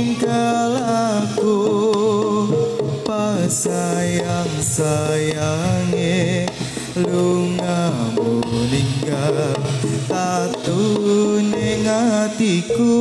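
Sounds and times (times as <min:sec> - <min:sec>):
drumming: 0:00.0 - 0:13.0
wavering melody line: 0:11.4 - 0:13.0.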